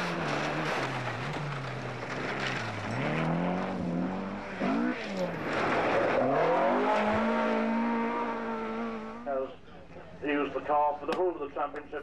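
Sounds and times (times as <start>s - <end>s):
rally car engine revving: 0.0s - 9.4s.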